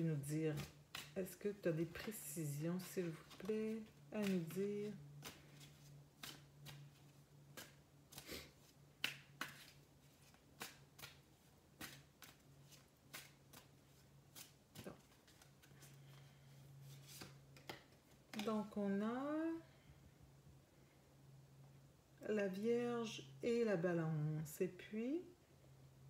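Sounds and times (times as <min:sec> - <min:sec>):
low steady hum: 0:00.0 - 0:26.0
cards being shuffled: 0:00.4 - 0:18.8.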